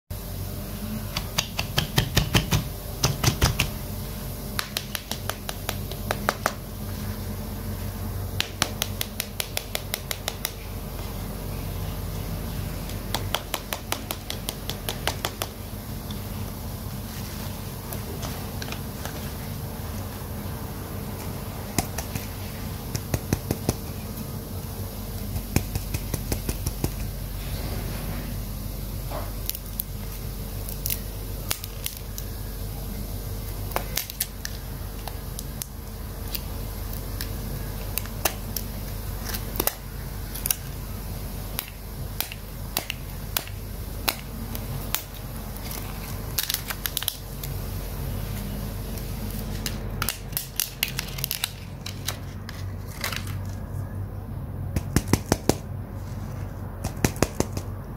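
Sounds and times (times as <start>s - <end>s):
steady background hum: 0.1s - 57.9s
plastic shrink-wrap crinkling: 29.3s - 32.4s, 44.2s - 47.6s, 48.2s - 53.8s.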